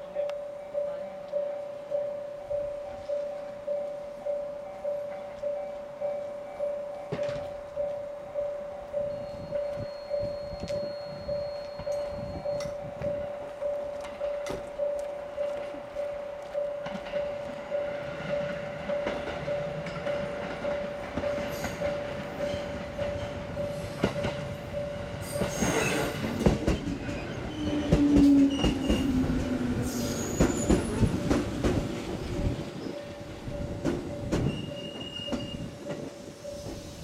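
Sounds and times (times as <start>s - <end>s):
level-crossing alarm dinging: 0.0s - 31.4s, 32.2s - 37.0s
electric train arriving: 0.0s - 37.0s
train wheels clattering on rail joints: 7.0s - 7.8s, 9.4s - 37.0s
train wheels squealing: 9.0s - 12.9s, 21.3s - 31.2s, 32.2s - 37.0s.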